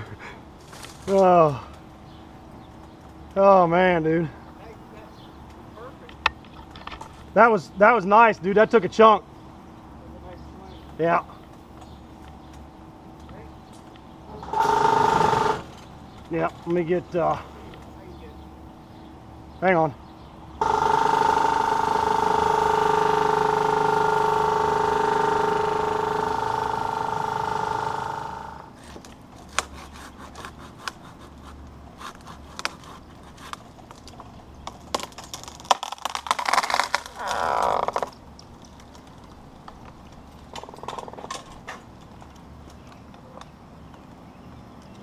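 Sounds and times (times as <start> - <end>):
leafy branches rustling: 0.4 - 3.4
hydraulic drive whine: 14.3 - 15.9, 20.6 - 28.8
hand saw rasping: 29.5 - 33.6.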